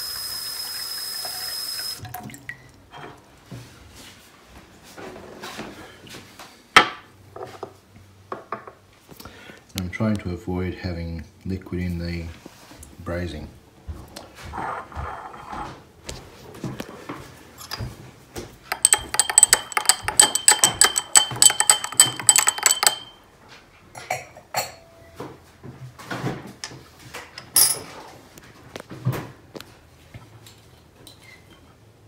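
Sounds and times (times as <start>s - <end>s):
jar knocks and taps: 18.7s - 23.1s
spoon clinking against glass jar: 18.7s - 23.2s.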